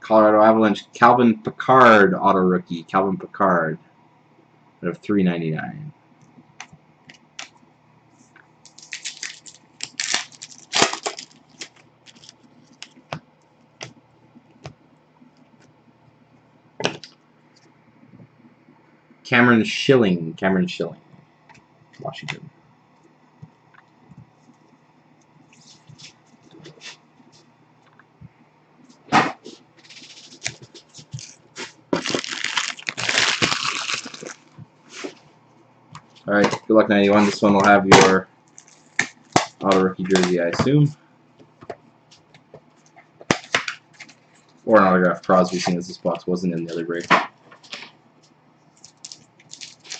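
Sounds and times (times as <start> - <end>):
foil wrapper tearing and crinkling: 8.7 - 13.0, 29.8 - 34.5, 38.5 - 39.6, 48.8 - 49.9
cards clicking and slapping: 43.2 - 44.2.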